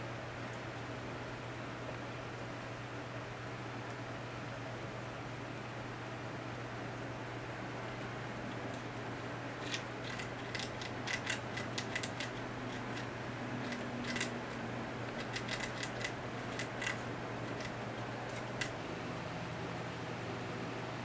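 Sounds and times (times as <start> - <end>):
rat gnawing coconut husk: 7.7 - 18.8.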